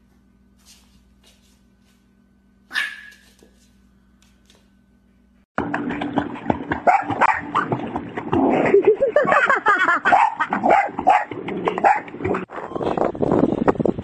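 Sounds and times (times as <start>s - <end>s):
water splashing: 5.6s - 9.6s.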